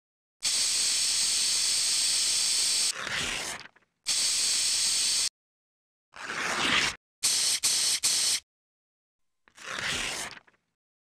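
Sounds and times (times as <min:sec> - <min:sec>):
spray paint can hissing: 0:00.4 - 0:02.9, 0:04.1 - 0:05.3, 0:07.2 - 0:08.4.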